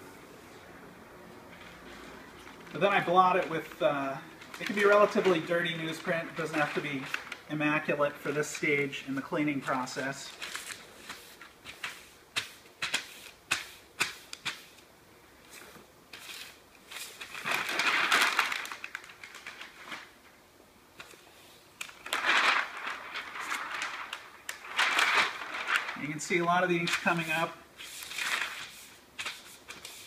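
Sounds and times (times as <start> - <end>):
newsprint rustling and crinkling: 1.4 - 11.2, 16.9 - 20.2, 21.8 - 29.5
sharp paper crackles: 1.5 - 8.9, 9.6 - 14.7, 15.6 - 20.2, 21.8 - 30.0.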